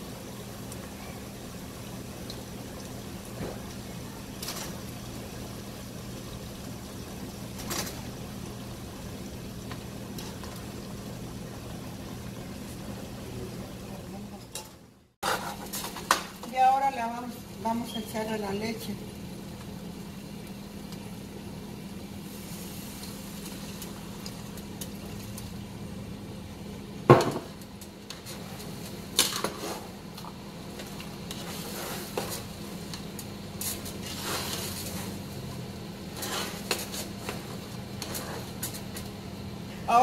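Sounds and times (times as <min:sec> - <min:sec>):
steady low hum: 0:00.0 - 0:40.0
metal utensil scraping a pan: 0:14.6 - 0:16.0.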